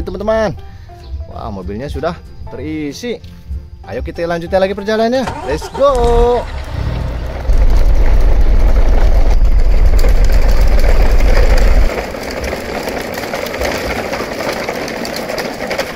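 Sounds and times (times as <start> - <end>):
toy truck wheels rumbling on concrete: 5.2 - 15.9.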